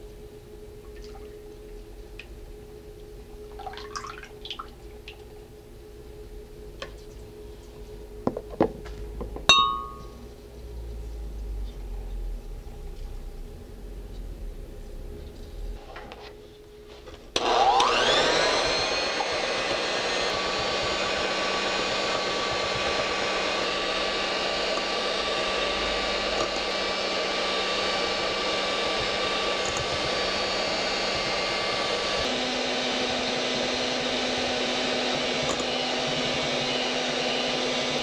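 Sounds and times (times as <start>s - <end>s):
electric mixer motor whining: 17.3s - 38.0s.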